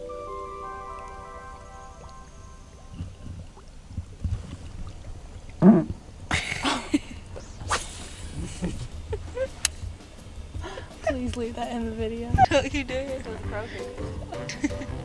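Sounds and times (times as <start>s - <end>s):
wind rumble: 0.7s - 15.0s
microphone handling noise: 3.0s - 4.8s.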